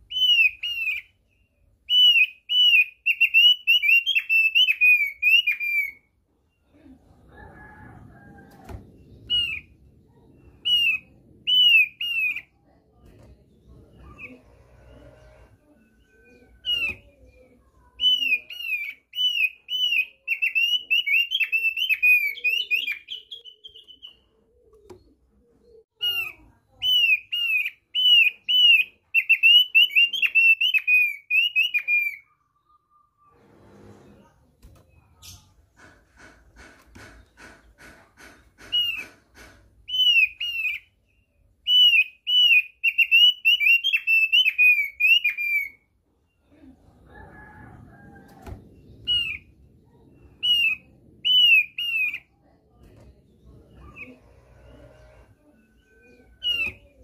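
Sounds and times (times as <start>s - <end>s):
bird whistling song: 0.0s - 6.1s, 9.2s - 9.7s, 10.6s - 12.5s, 18.0s - 24.4s, 26.0s - 33.3s, 39.9s - 45.9s, 49.0s - 49.5s, 50.3s - 52.3s, 55.8s - 57.0s
knock: 35.8s - 39.8s.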